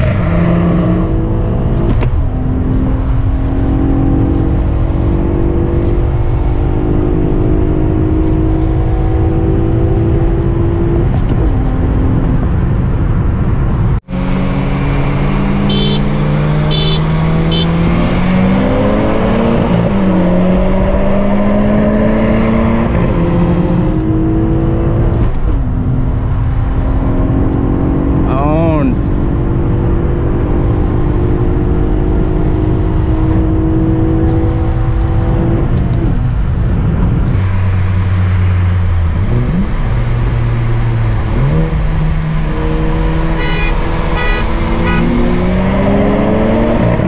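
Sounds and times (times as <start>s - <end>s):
car engine accelerating: 0.0s - 47.0s.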